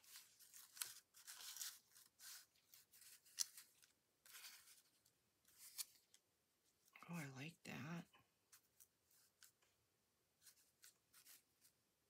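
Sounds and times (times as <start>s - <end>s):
paper rustling and scraping: 0.0s - 6.2s, 10.4s - 11.8s.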